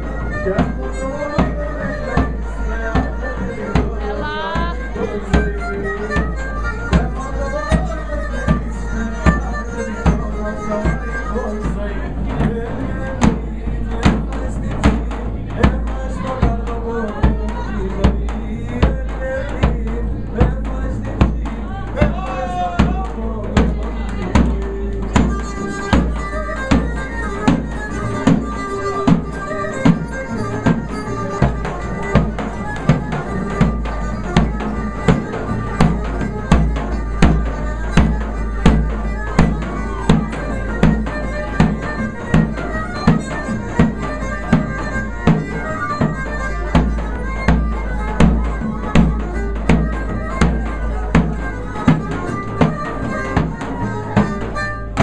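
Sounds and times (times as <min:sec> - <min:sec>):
wind instrument melody: 0:00.0 - 0:13.0, 0:24.0 - 0:55.0
hand-struck drum beating: 0:00.0 - 0:55.0.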